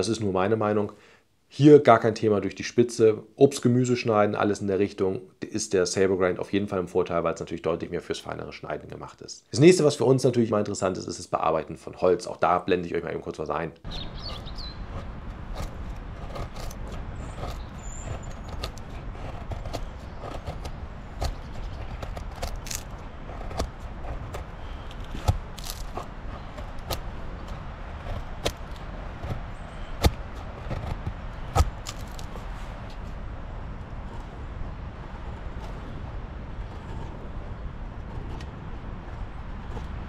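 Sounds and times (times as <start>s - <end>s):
knife scraping wooden stick: 13.9s - 33.1s
steady low rumble: 13.9s - 40.0s.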